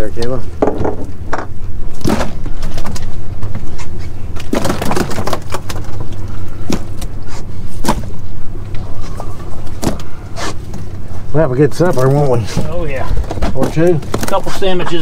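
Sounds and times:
outboard engine idling: 5.2s - 15.0s.

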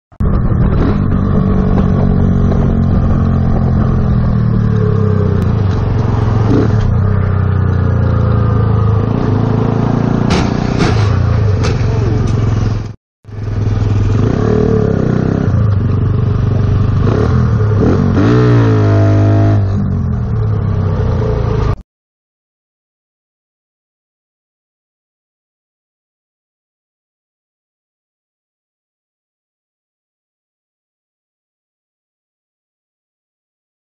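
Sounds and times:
wind noise: 0.2s - 7.1s
motorcycle engine running: 0.2s - 21.8s.

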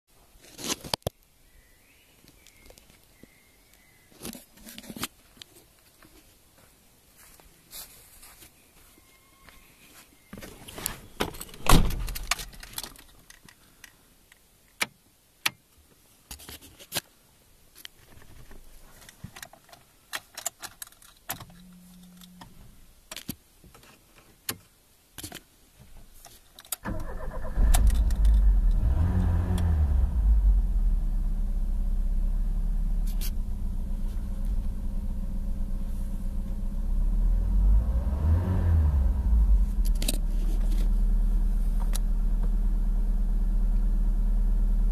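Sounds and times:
clicks and knocks of keys and controls: 11.2s - 15.6s, 17.8s - 25.5s, 26.2s - 26.8s
car engine starting and idling: 26.8s - 44.9s
car engine revving: 26.9s - 44.9s.

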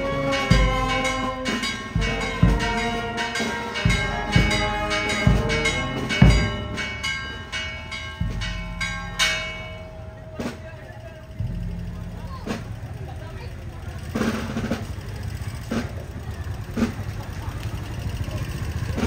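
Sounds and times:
marching brass band playing: 0.0s - 10.8s, 14.0s - 15.0s, 15.7s - 15.9s
bass drum beats: 0.0s - 19.0s.

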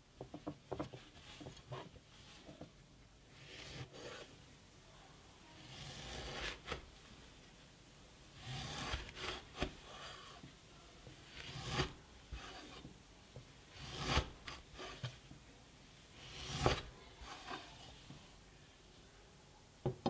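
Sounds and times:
knife cutting fabric on board: 5.7s - 6.8s, 8.4s - 9.8s, 13.8s - 15.2s, 16.2s - 18.1s.

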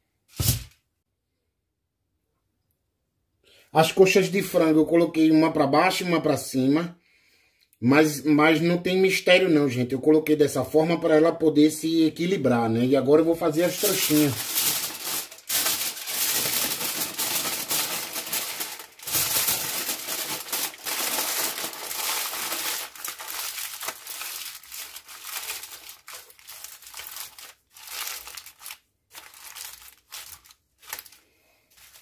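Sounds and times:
aluminium foil crinkling: 13.6s - 32.0s.

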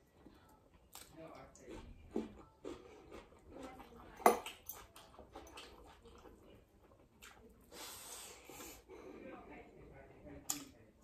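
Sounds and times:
person chewing: 0.1s - 8.8s.

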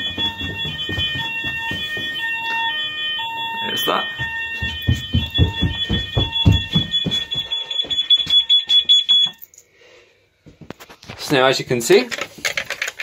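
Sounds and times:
fire alarm sounders high tones: 0.0s - 9.6s.

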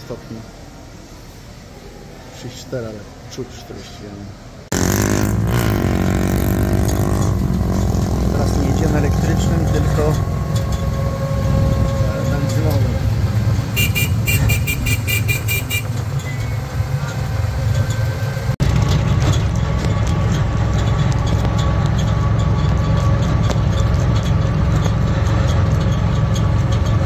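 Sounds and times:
vehicle engine running: 4.7s - 27.0s
light rattling tick: 15.9s - 27.0s.

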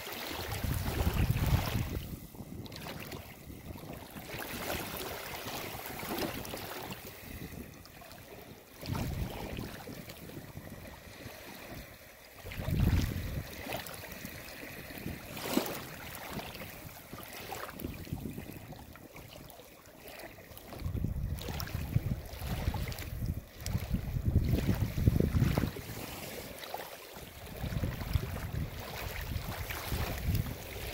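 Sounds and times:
sharp water splash: 0.0s - 2.1s, 12.4s - 14.1s, 15.0s - 18.1s, 27.6s - 30.9s
waves lapping over pebbles: 0.0s - 30.9s.

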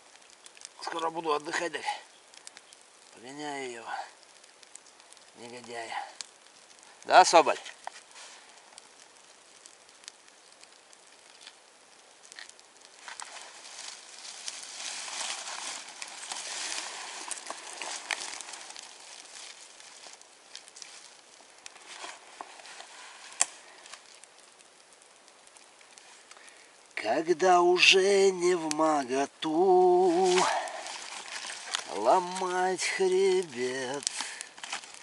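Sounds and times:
small pops: 0.0s - 1.0s, 2.1s - 3.2s, 4.1s - 27.0s, 30.0s - 35.0s
kindling fire crackling and hissing: 0.0s - 35.0s
sharp crack: 4.3s - 26.5s, 29.8s - 35.0s.

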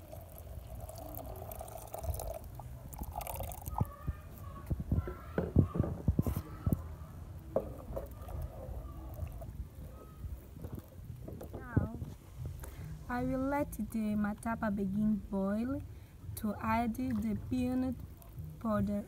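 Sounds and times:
liquid pouring into a pot: 0.0s - 3.9s, 7.5s - 11.2s
wooden spoon stirring a pot: 7.5s - 11.6s.

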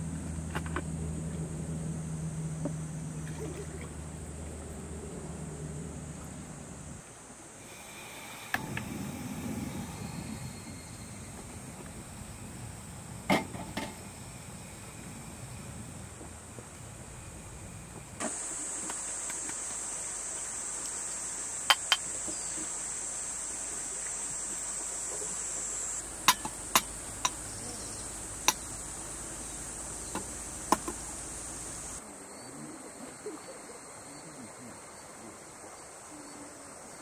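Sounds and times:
insects shrilling: 18.2s - 32.0s.

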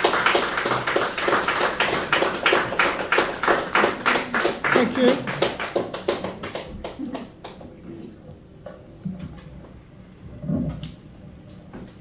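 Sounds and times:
audience applause: 0.0s - 7.6s.

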